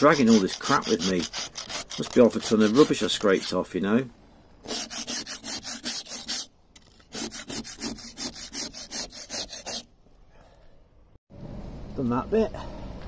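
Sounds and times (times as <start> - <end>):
scraper scraping steel hull: 0.0 - 3.8.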